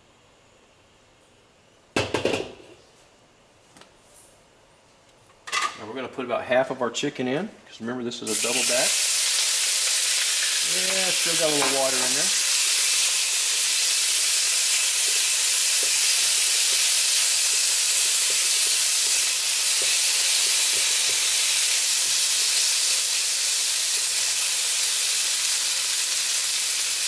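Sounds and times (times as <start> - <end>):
chicken sizzling in hot oil: 8.3 - 27.0.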